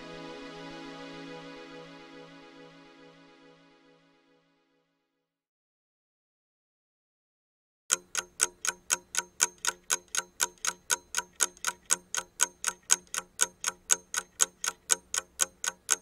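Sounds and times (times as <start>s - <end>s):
steady ticking: 7.9s - 16.0s.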